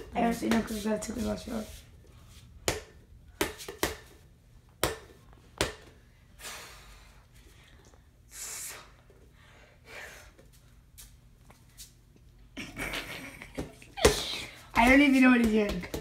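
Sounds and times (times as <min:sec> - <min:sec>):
ball bouncing on hard floor: 0:00.0 - 0:00.9, 0:02.6 - 0:04.2, 0:04.8 - 0:06.0, 0:13.5 - 0:16.0.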